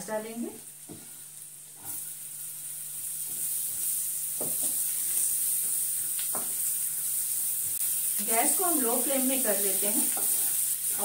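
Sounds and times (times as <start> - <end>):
onions sizzling in a frying pan: 0.0 - 11.0
wooden spatula knocking on pan: 4.4 - 4.8.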